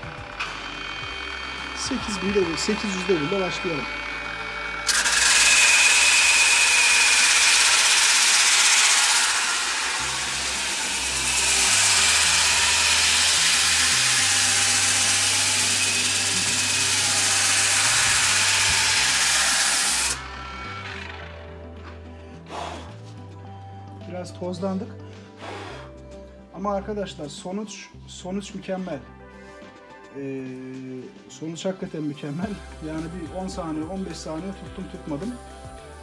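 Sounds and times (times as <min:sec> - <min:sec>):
sander sanding wood: 0:00.0 - 0:21.7.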